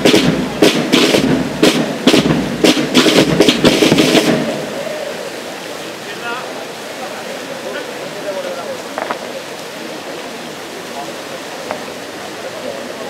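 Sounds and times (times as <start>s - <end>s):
marching drums and cymbals: 0.0s - 4.9s
low steady band sound: 0.0s - 13.0s.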